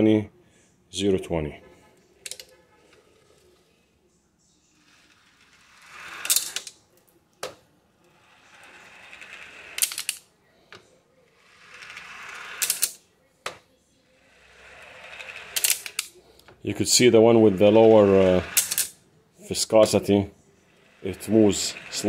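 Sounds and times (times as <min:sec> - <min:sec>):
ball bearings rolling in metal channels: 0:04.7 - 0:06.9, 0:08.0 - 0:10.3, 0:11.3 - 0:13.0, 0:14.2 - 0:16.2, 0:16.8 - 0:19.0, 0:19.6 - 0:22.0.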